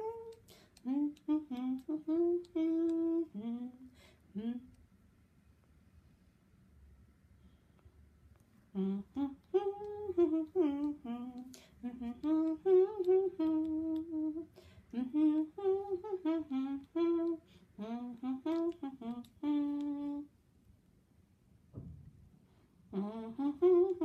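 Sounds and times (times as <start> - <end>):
person humming: 0.0 - 4.8, 8.8 - 20.3, 22.9 - 24.0.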